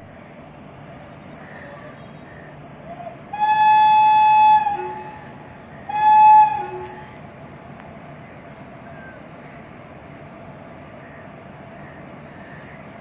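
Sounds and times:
moving train rumble: 0.0s - 13.0s
train horn blasts: 3.4s - 7.2s.

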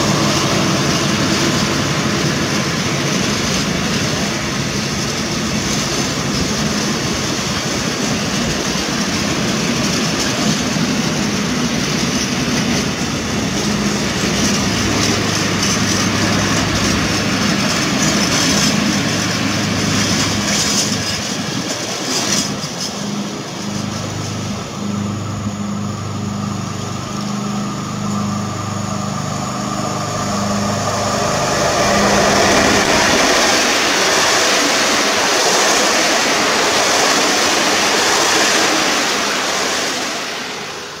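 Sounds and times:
freight train wheels rolling on rails: 0.0s - 41.0s
passenger train coaches passing: 0.0s - 41.0s
pulsing low hum: 22.5s - 34.2s.

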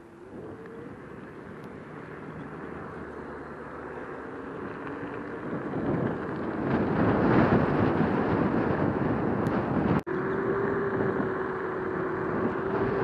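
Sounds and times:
wind on microphone: 0.0s - 13.0s
tyre rumble on asphalt: 0.3s - 10.0s.

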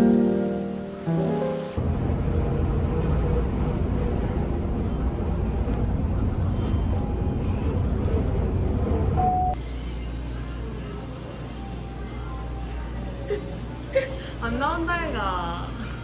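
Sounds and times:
road noise: 0.1s - 9.6s
bus engine rumble: 1.8s - 9.6s
brief beep: 9.2s - 9.6s.

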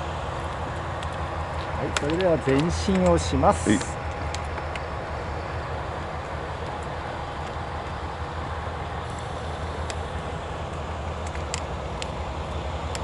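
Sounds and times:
wheelchair rolling on pavement: 0.4s - 5.2s.

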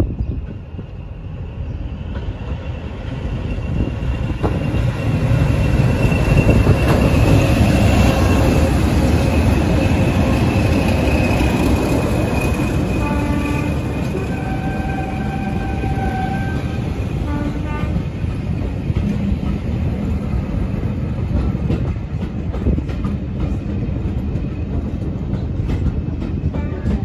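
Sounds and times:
diesel locomotives passing: 0.0s - 27.0s.

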